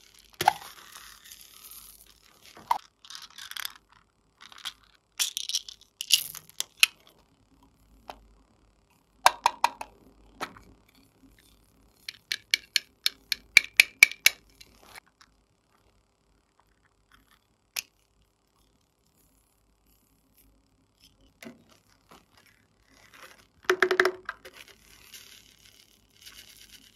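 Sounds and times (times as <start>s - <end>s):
plastic containers clicking and tapping: 9.3s - 10.7s, 12.1s - 14.7s, 23.6s - 24.7s.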